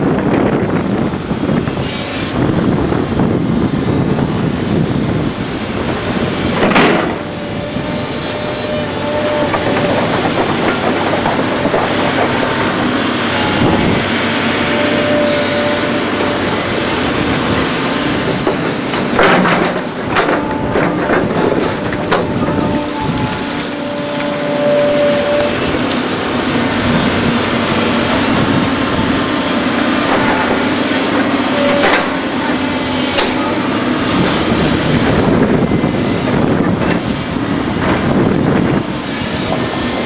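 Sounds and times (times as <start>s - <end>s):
diesel engine under load: 0.0s - 40.0s
hydraulic whine: 0.0s - 40.0s
tracks and bucket clanking: 5.8s - 40.0s.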